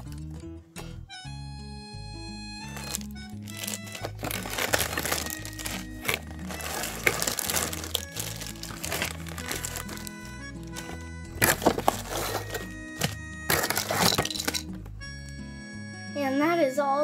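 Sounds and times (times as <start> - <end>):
background music: 0.0 - 17.0
plastic bags crinkling: 2.6 - 14.8.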